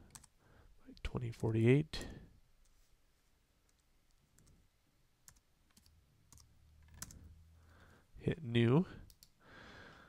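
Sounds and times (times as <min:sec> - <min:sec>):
keystrokes on computer keyboard: 0:00.0 - 0:00.4, 0:03.6 - 0:04.6, 0:05.2 - 0:07.3, 0:09.0 - 0:09.4.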